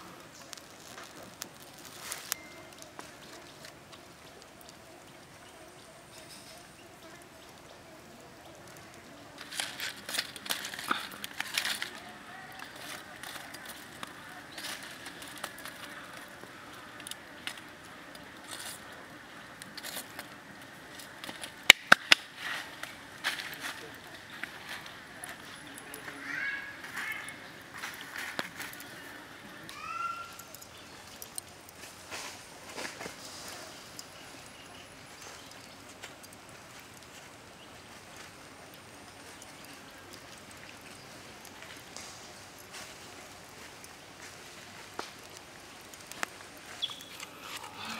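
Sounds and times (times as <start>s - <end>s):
squid sizzling on charcoal: 0.0s - 47.9s
small pops and clicks: 0.2s - 5.1s, 8.4s - 26.2s, 29.7s - 32.0s, 38.2s - 47.9s.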